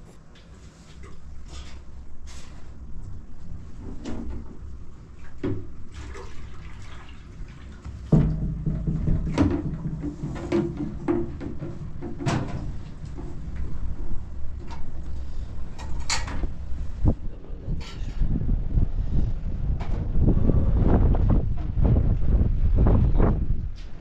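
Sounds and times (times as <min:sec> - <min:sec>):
water pouring into jug: 0:05.9 - 0:08.6
plastic containers knocking: 0:08.1 - 0:12.5.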